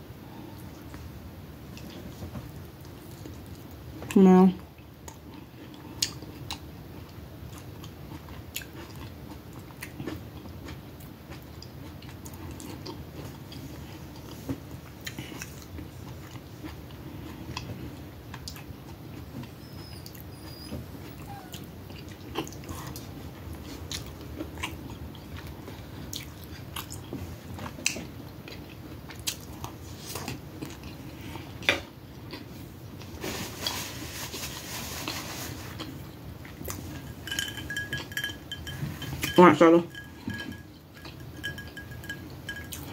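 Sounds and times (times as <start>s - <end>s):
biting and wet chewing: 4.8s - 33.8s, 35.0s - 42.9s
paper napkin rustling: 33.1s - 36.0s
steady low hum: 35.5s - 42.9s.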